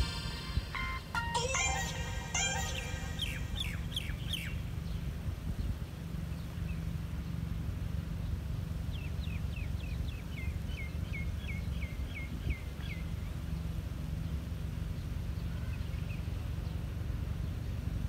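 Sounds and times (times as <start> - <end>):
bird calling downward notes: 0.0 - 4.7
low outdoor rumble: 0.0 - 18.0.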